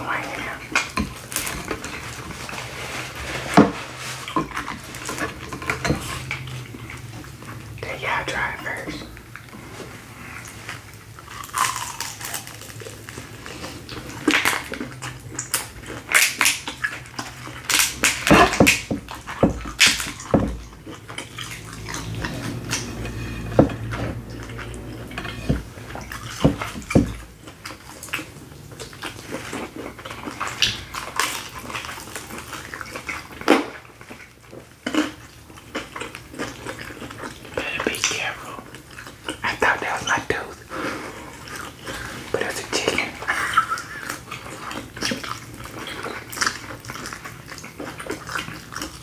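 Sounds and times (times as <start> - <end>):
wet chewing: 10.2 - 49.0.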